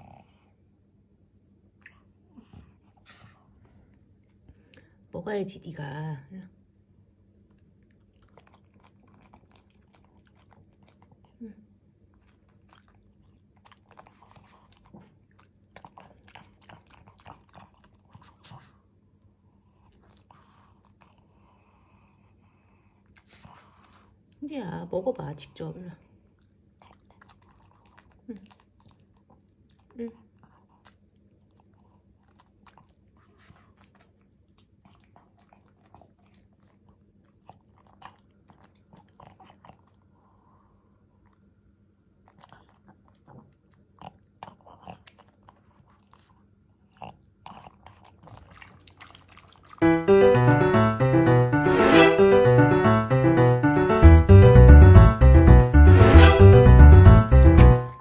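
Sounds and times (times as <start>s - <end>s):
dog chewing wet food: 7.4s - 11.4s, 12.0s - 18.8s, 26.4s - 41.4s, 42.2s - 49.8s.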